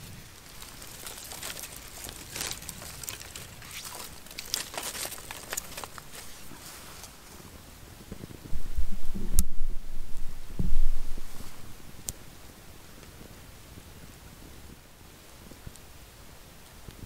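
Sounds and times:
twigs crackling and snapping: 0.0s - 7.6s.

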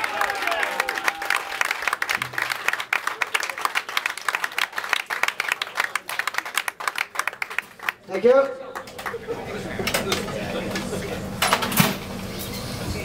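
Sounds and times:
audience clapping: 0.0s - 10.2s.

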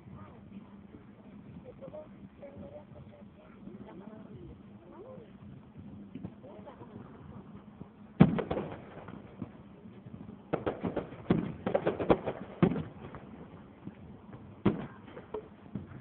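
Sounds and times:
firework shells bursting: 8.2s - 16.0s.

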